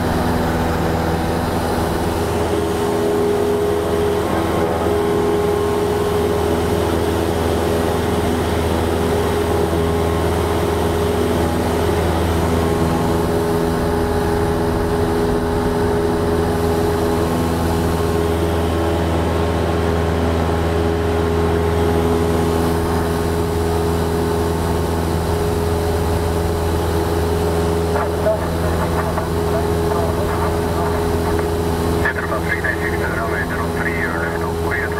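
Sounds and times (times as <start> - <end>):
airplane engine drone in cabin: 0.0 - 34.9.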